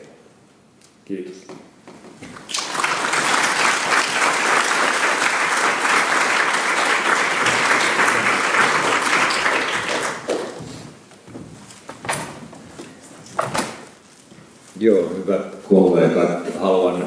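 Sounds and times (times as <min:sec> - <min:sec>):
audience applauding: 0:02.4 - 0:10.6.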